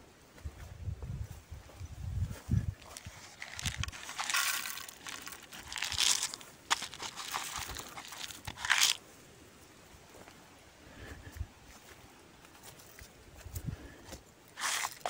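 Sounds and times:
seeds pouring into wooden tray: 0:02.9 - 0:09.0, 0:14.6 - 0:15.0.

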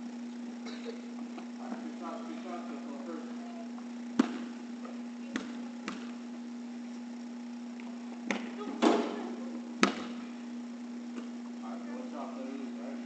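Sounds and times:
steady low hum: 0:00.0 - 0:13.0
basketball bouncing on wooden floor: 0:04.2 - 0:04.5, 0:05.3 - 0:06.2, 0:09.8 - 0:10.2.

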